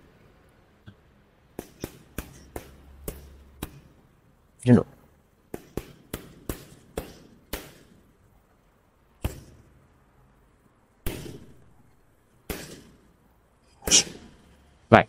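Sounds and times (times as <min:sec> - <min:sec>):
boxing gloves hitting focus mitts: 0:01.5 - 0:04.0, 0:05.5 - 0:08.1, 0:09.2 - 0:09.8, 0:11.0 - 0:13.1.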